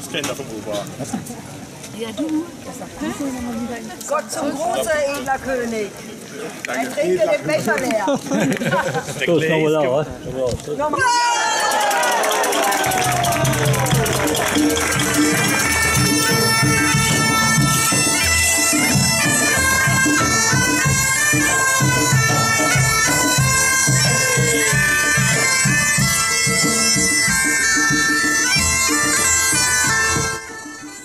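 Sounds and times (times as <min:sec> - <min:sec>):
bagpipes playing a tune: 0:12.8 - 0:31.0.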